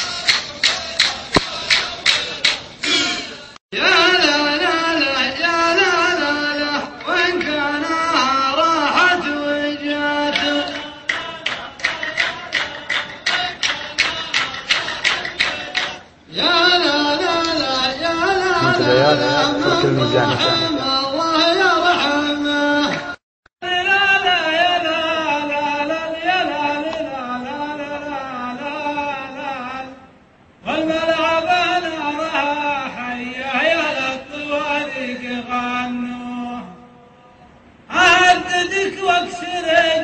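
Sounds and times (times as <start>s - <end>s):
sharp percussive strikes: 0.0s - 3.1s, 10.3s - 16.0s
man singing ornamented vocal line: 1.4s - 40.0s.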